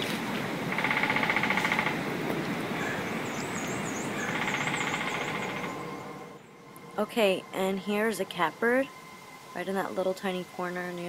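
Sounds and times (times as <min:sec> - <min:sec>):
woodpecker drumming: 0:00.6 - 0:11.0
faint high bird song: 0:02.8 - 0:06.7.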